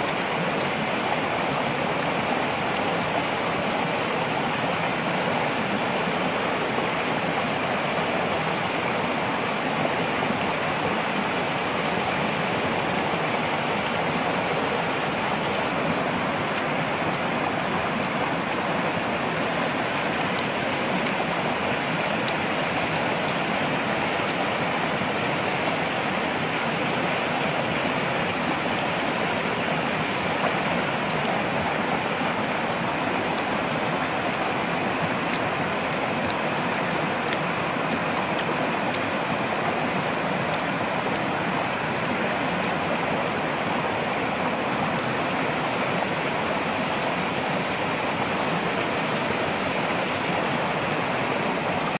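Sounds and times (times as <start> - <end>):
stream rushing over rocks: 0.0 - 51.9.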